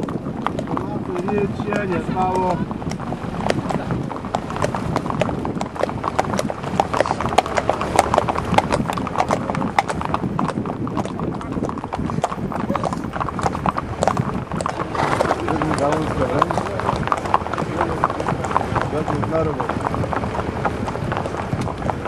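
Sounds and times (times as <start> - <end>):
horse hooves clip-clopping on pavement: 0.0 - 22.0.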